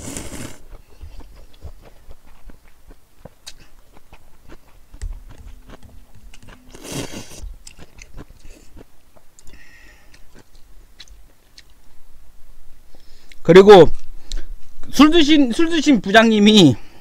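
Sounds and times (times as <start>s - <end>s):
slurping noodles: 0.0s - 0.8s, 6.7s - 8.7s
wet chewing: 0.0s - 12.0s.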